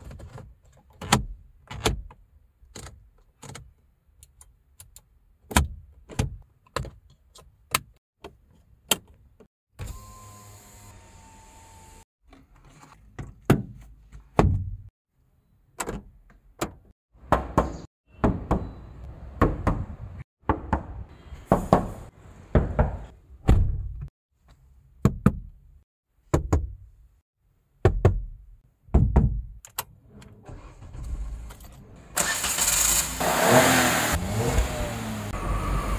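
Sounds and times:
car engine starting and running: 30.1 - 35.9.

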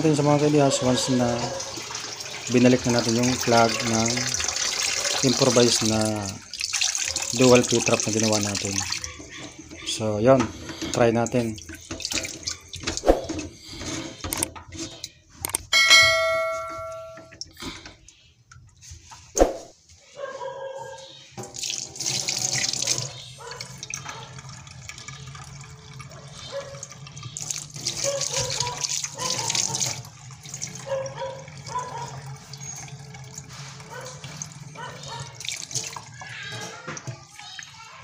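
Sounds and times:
tap water running into sink: 0.0 - 15.2, 21.4 - 37.9
short metallic ring: 15.7 - 17.3.

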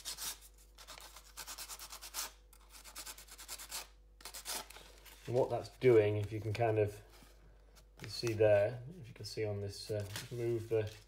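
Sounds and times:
sandpaper rubbing on paper: 0.0 - 4.7.

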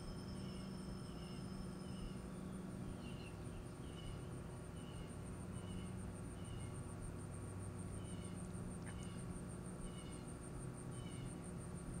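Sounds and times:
insect trill pulsing: 0.0 - 3.2
low steady hum: 0.0 - 12.0.

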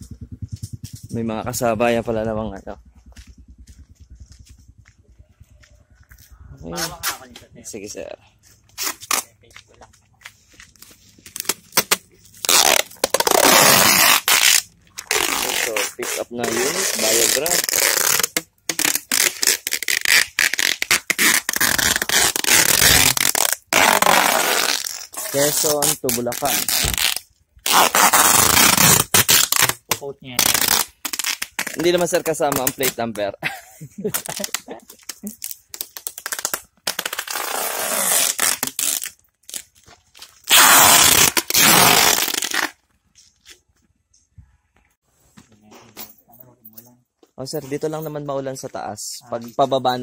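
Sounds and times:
low rumble: 0.0 - 7.8
plastic stretch wrap crackling: 10.7 - 33.0, 34.1 - 42.9.

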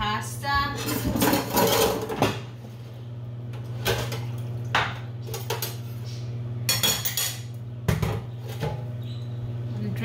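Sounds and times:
steady low hum: 0.0 - 10.0
metal pots clanking: 0.8 - 2.5.

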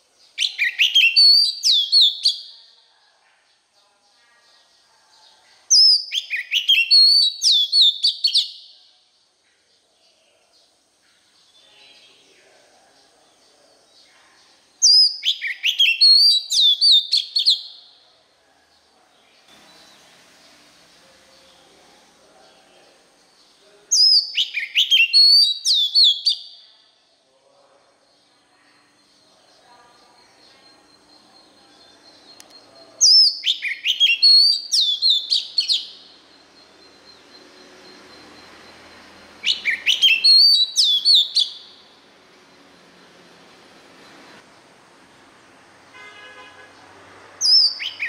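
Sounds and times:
bird singing whistled phrase: 0.4 - 2.5, 5.7 - 8.6, 14.8 - 17.7, 24.0 - 26.6, 32.0 - 36.1, 39.4 - 41.8, 47.4 - 48.0.

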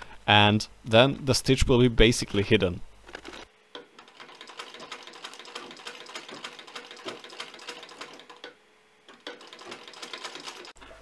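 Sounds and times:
sewing machine ticking and clacking: 3.2 - 10.8.

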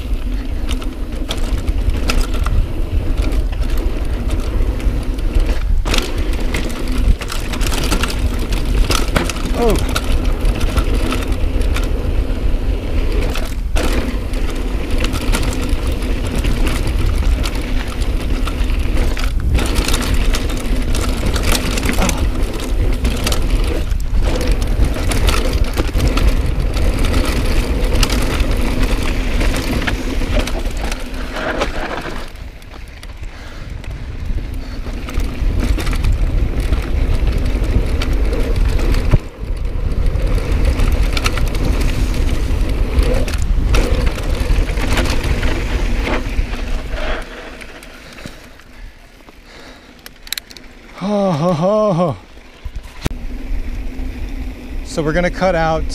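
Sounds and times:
tyres crunching on dirt and gravel: 0.0 - 33.3
wind rumble on microphone: 0.0 - 49.0
bike rattles and knocks: 0.0 - 55.9.

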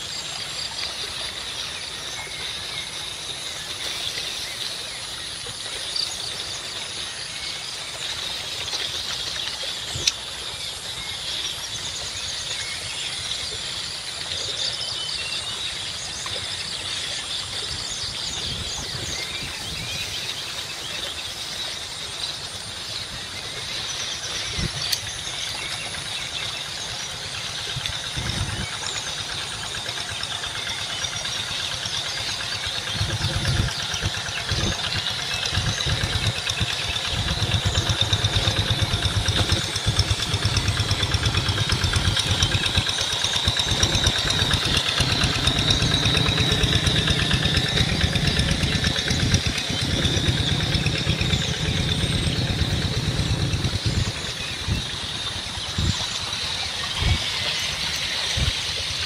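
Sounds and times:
low engine-like rumble: 0.0 - 59.0
high-pitched hum: 23.2 - 59.0.

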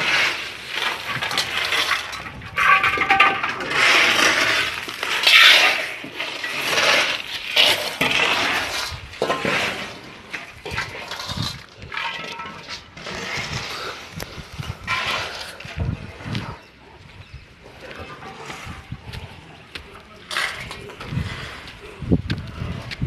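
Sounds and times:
stones clattering: 0.0 - 16.0
shovel scraping concrete floor: 0.0 - 16.6, 20.2 - 22.0.

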